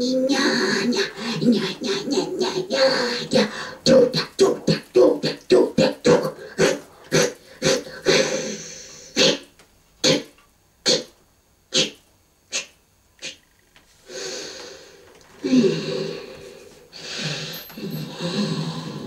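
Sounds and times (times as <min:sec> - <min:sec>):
breathy hiss: 0:00.0 - 0:05.4, 0:06.2 - 0:11.1, 0:11.7 - 0:19.0
person coughing or huffing: 0:06.6 - 0:11.1.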